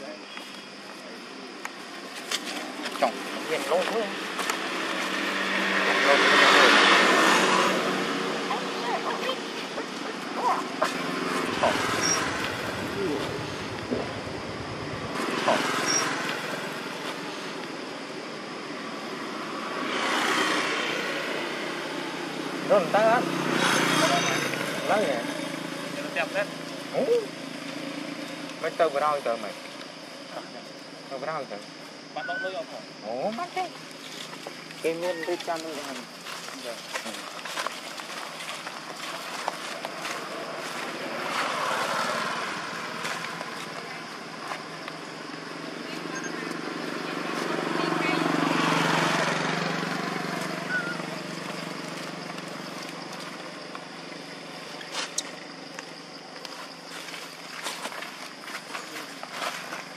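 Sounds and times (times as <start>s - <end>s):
passing traffic noise: 2.6s - 59.9s
motor scooter passing: 3.7s - 28.4s, 39.3s - 54.7s.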